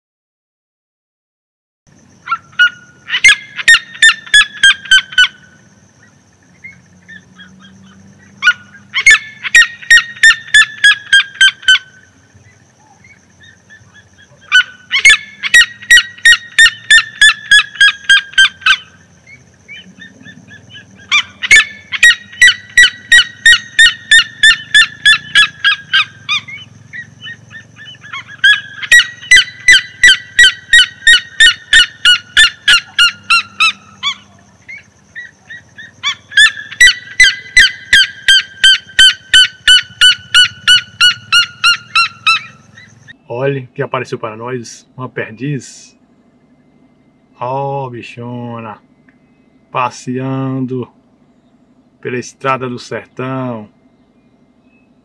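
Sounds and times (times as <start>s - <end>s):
bird yelping calls: 2.1s - 44.3s.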